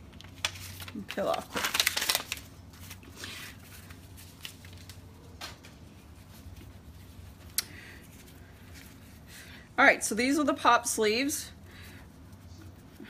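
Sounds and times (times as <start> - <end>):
paper rustling: 0.0 - 7.4.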